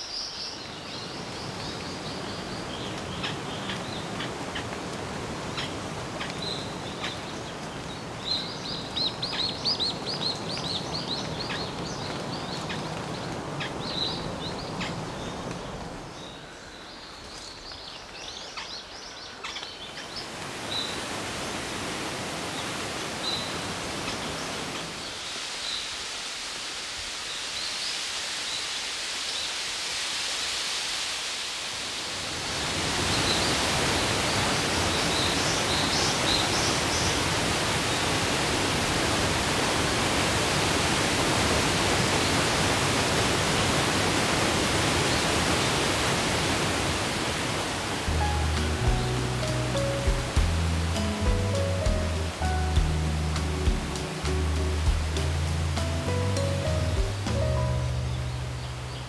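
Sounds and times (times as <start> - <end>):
waterfall rushing: 0.0 - 16.6, 20.0 - 59.0
birds chirping: 0.0 - 21.1, 48.0 - 59.0
steady hiss: 0.0 - 59.0.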